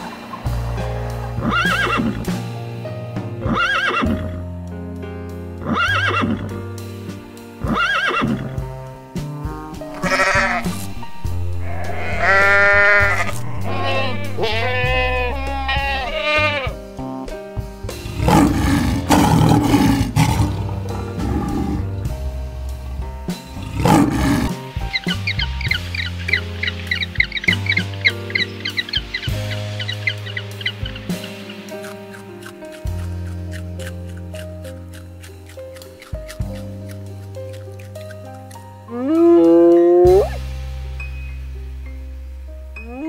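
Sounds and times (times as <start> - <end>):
background music: 0.0 - 43.0
goats bleating: 9.9 - 10.8, 11.6 - 16.8
lion roaring: 18.0 - 22.1, 23.5 - 24.6
rising and falling call: 23.6 - 32.3.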